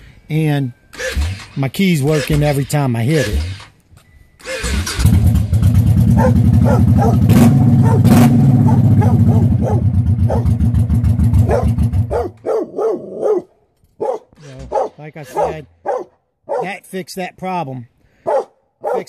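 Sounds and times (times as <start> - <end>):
motorcycle engine starting and running: 0.9 - 12.5
dog barking: 6.2 - 10.6, 11.4 - 16.8, 18.2 - 19.0.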